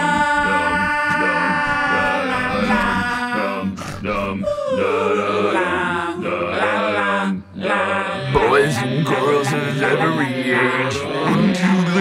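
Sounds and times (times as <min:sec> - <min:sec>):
male voices singing a cappella: 0:00.0 - 0:12.0.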